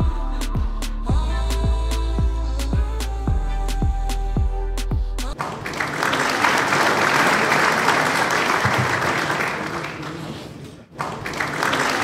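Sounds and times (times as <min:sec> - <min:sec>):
dense clapping: 0:05.4 - 0:10.3, 0:10.9 - 0:12.0.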